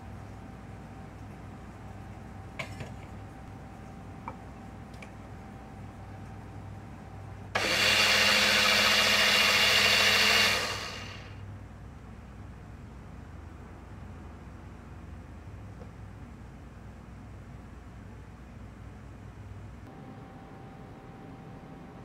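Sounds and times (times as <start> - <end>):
electric blender running: 7.6 - 11.4.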